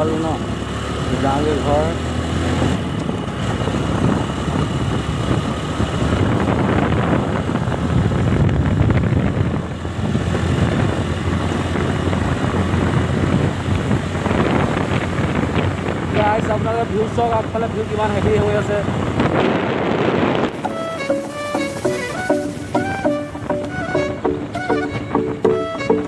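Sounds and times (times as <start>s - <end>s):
motorcycle engine rumble: 0.0s - 26.0s
wind rushing over microphone: 0.0s - 26.0s.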